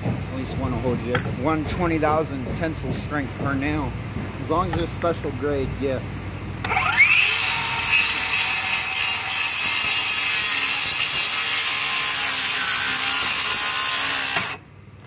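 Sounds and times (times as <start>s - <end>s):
circular saw cutting wood: 6.6s - 14.6s.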